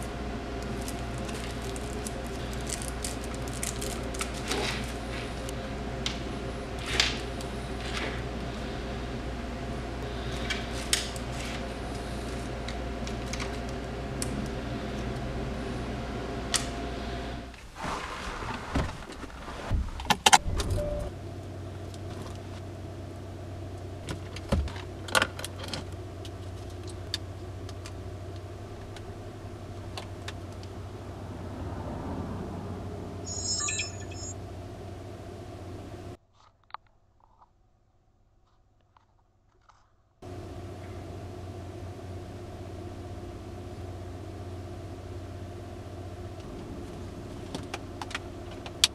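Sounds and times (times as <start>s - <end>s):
car cabin hum: 0.0s - 17.5s, 40.2s - 48.9s
steady low hum: 0.0s - 17.6s, 40.2s - 48.9s
cables and plastic packaging rustling: 0.6s - 6.2s, 10.3s - 14.4s.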